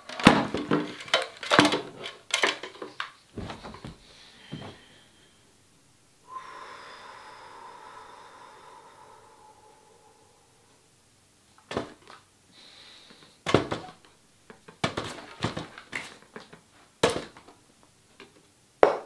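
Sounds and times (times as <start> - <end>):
short knocks and thuds: 3.4 - 4.8.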